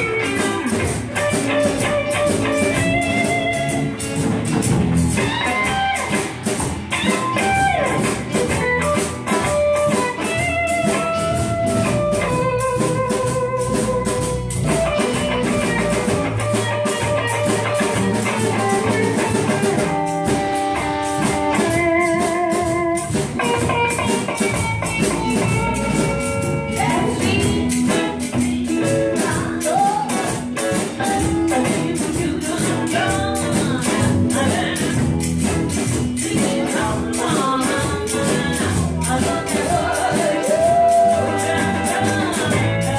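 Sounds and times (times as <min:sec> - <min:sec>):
bass guitar: 0:00.0 - 0:42.9
drum kit steady beat: 0:00.0 - 0:42.9
electric and acoustic guitars: 0:00.0 - 0:42.9
woman singing with vibrato: 0:26.5 - 0:35.5, 0:36.1 - 0:42.9.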